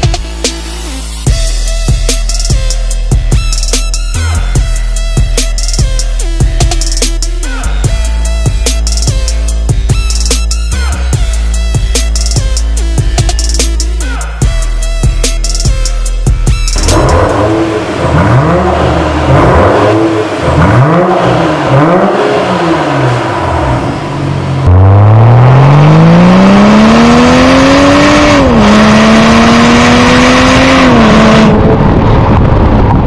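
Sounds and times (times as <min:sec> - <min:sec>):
car engine revving: 0:00.0 - 0:33.0
car accelerating with gear shifts: 0:16.8 - 0:32.8.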